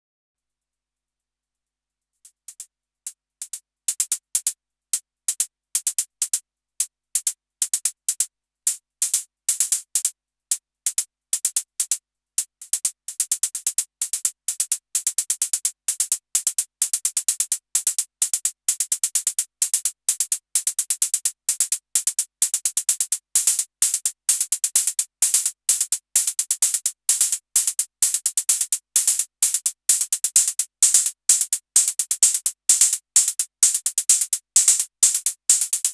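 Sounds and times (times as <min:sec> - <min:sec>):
synthesized hi-hats ticking: 0:09.0 - 0:35.9.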